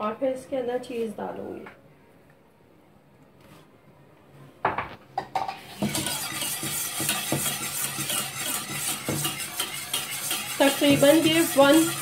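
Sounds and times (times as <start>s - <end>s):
whisk clinking and scraping pot: 5.3s - 12.0s.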